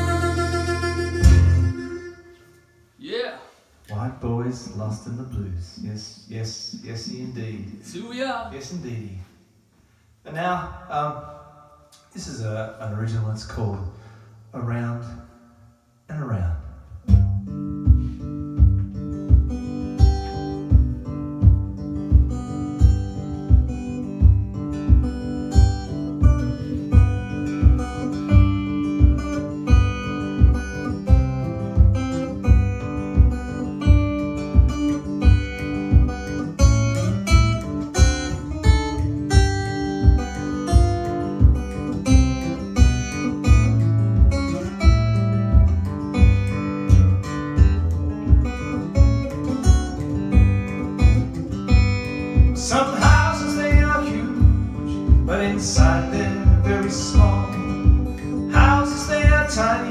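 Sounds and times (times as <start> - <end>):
bending melody line: 0.0 - 2.9
acoustic blues guitar: 0.0 - 5.9, 9.9 - 59.9
low thump on each beat: 17.1 - 59.6.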